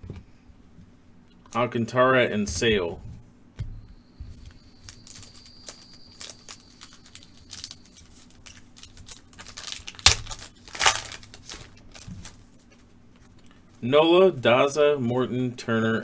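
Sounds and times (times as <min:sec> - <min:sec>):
foil wrapper crinkling and tearing: 0:04.8 - 0:12.6.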